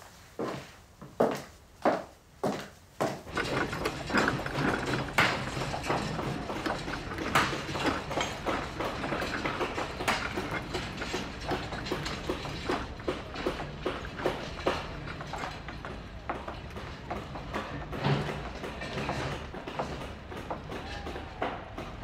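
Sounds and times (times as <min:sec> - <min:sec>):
high-heel footsteps on wooden floor: 0:00.4 - 0:03.4.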